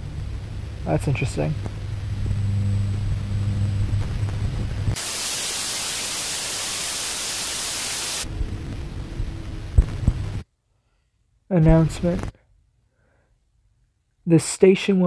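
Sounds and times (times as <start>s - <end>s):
low droning hum: 0.0s - 5.0s, 8.2s - 10.4s
tv static hiss: 0.0s - 10.4s, 11.6s - 12.3s.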